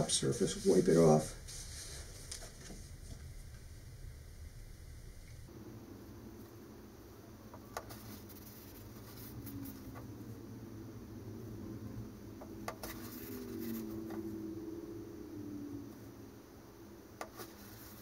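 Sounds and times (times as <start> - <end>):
wiping with paper towel: 0.1 - 3.1
soft rubbing of cardboard tube: 0.1 - 3.4, 7.6 - 10.2, 12.7 - 14.4, 17.2 - 18.0.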